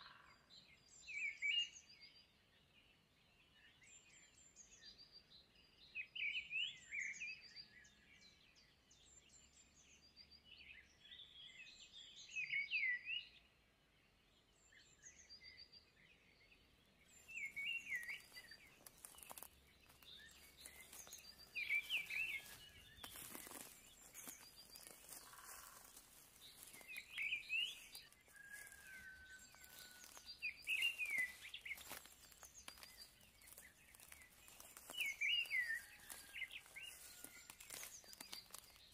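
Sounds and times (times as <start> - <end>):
high bird chirps: 17.3 - 38.9.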